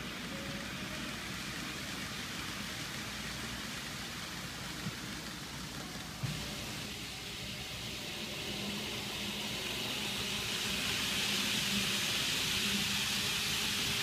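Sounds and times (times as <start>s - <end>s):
model train running on track: 0.0s - 14.0s.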